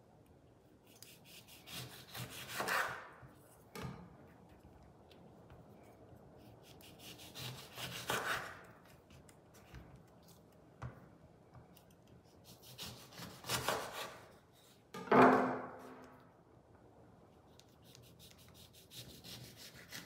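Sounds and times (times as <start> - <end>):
knife slicing oranges: 0.9 - 3.2, 6.5 - 9.0, 12.4 - 14.3.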